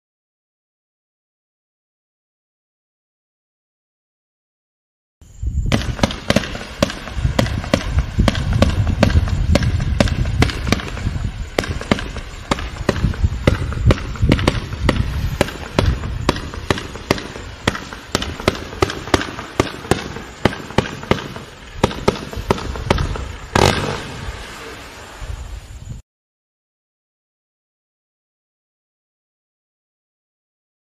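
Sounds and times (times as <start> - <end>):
firework hiss: 5.3 - 26.0
firework launch pops: 5.6 - 24.7.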